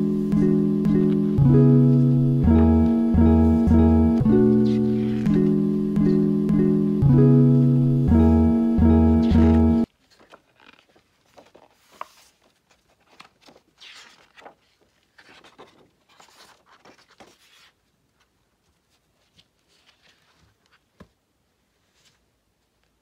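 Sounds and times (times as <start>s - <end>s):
acoustic guitar music: 0.0s - 9.9s
magazine pages rustling: 9.9s - 17.8s, 18.9s - 21.2s.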